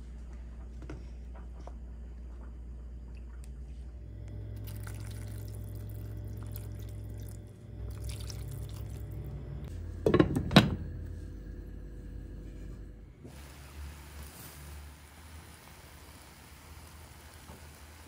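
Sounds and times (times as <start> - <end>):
steady low hum: 0.0 - 16.7
liquid pouring in cookware: 4.6 - 9.2
cookware knocks: 10.0 - 10.8.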